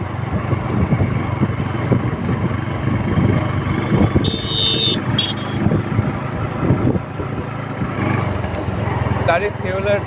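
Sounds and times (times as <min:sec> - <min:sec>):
motorcycle engine running: 0:00.0 - 0:10.0
wind buffeting microphone: 0:00.2 - 0:04.4, 0:05.6 - 0:08.0
horn honking: 0:03.9 - 0:05.7.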